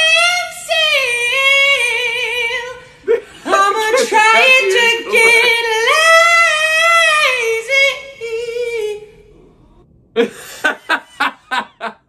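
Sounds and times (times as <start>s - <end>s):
man laughing: 3.1s - 5.8s, 10.2s - 12.0s.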